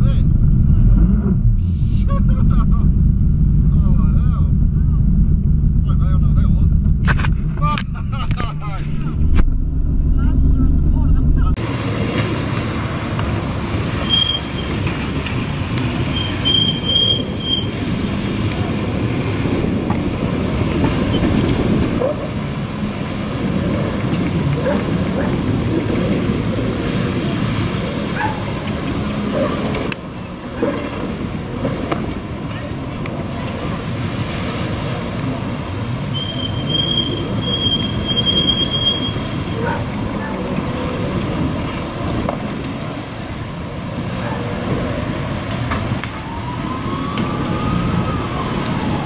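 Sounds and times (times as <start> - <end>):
whining tone: 0.0 - 11.6
jet ski engine: 0.0 - 45.5
wind: 0.0 - 49.0
churning water: 10.9 - 49.0.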